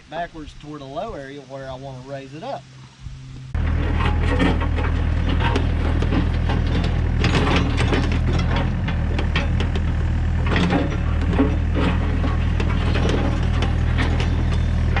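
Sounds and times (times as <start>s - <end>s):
excavator engine hum: 2.6s - 15.0s
bucket scraping dirt and stones: 3.6s - 15.0s.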